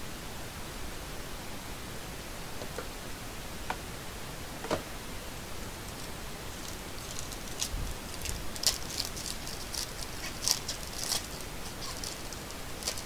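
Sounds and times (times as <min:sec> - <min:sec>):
foil wrapper crinkling: 0:05.9 - 0:13.0.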